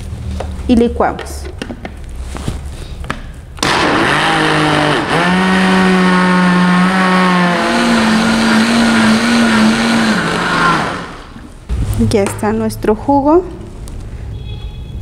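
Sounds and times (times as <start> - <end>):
blender motor whining: 3.6 - 11.4.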